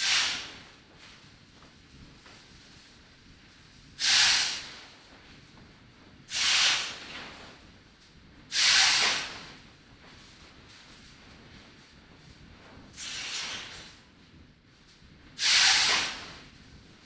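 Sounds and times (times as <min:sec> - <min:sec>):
bursts of hiss: 0:00.0 - 0:00.8, 0:03.9 - 0:05.1, 0:06.3 - 0:07.4, 0:08.5 - 0:09.6, 0:13.0 - 0:13.8, 0:15.4 - 0:16.5.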